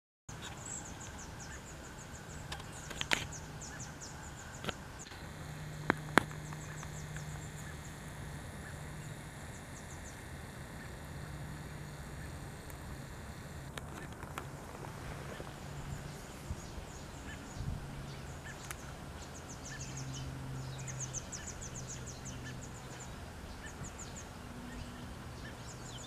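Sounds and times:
low steady hum: 0.3 - 26.0
sharp clicks: 2.4 - 3.8, 4.4 - 14.8.

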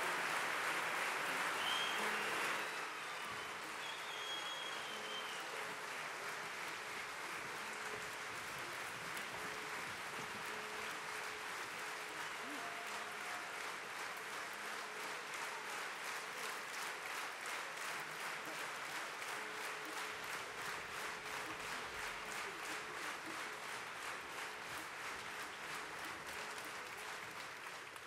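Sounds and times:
audience applause: 0.0 - 28.0.

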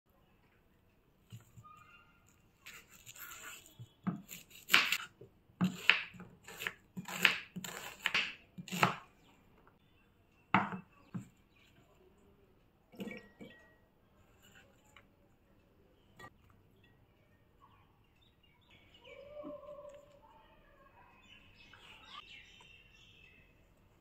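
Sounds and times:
knife chopping on wooden board: 4.1 - 9.0.

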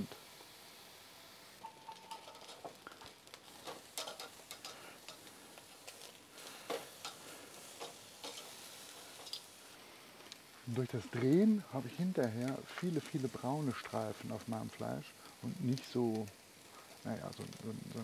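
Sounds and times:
steaks sizzling on grill: 0.0 - 18.0
metal tongs clicking on grate: 1.9 - 6.1, 6.7 - 8.6, 9.2 - 9.5.

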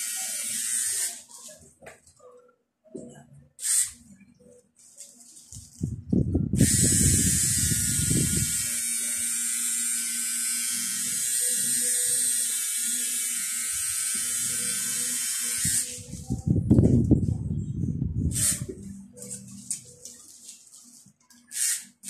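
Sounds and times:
tattoo machine buzzing: 0.0 - 1.2, 3.6 - 4.0, 6.6 - 16.0, 18.3 - 18.8, 21.5 - 22.0.

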